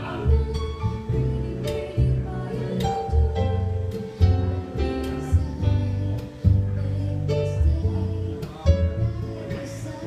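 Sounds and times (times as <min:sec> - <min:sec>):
double bass plucking: 0:00.0 - 0:10.0
vocals: 0:00.0 - 0:10.0.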